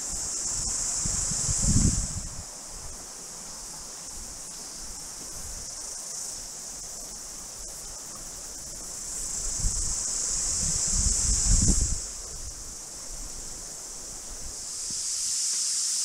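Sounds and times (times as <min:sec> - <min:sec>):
wind rumble on microphone: 0:00.0 - 0:03.1, 0:07.5 - 0:15.1
cicadas singing: 0:00.0 - 0:16.0.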